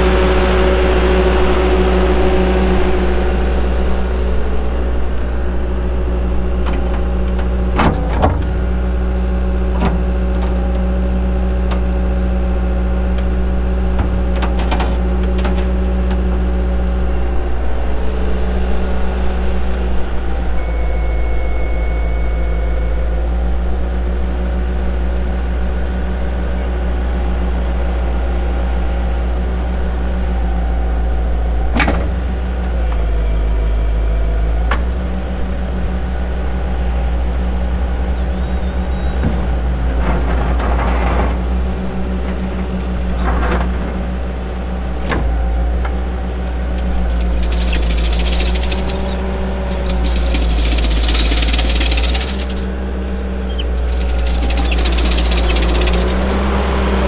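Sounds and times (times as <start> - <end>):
diesel engine running: 0.0 - 57.0
hydraulics working: 0.0 - 57.0.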